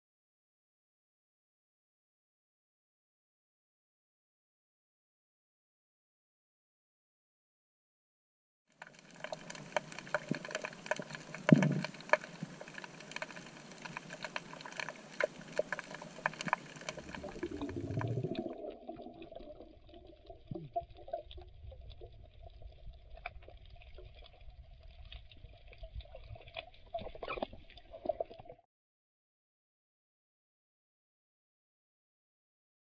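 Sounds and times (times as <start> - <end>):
small sharp underwater clicks: 8.8 - 18.7
underwater thump: 11.5 - 12.0.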